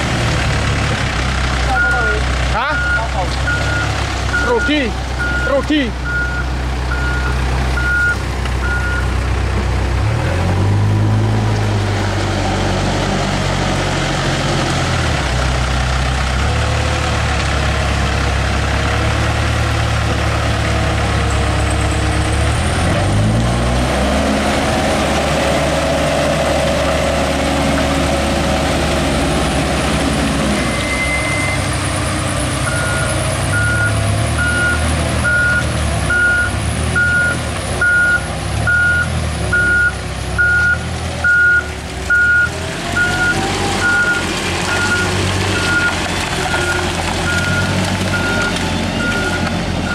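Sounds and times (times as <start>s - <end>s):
backhoe diesel engine labouring: 0.0s - 49.9s
truck engine running: 0.0s - 49.9s
reversing alarm beeping: 2.7s - 9.0s, 30.6s - 31.7s, 32.6s - 45.9s, 46.5s - 49.9s.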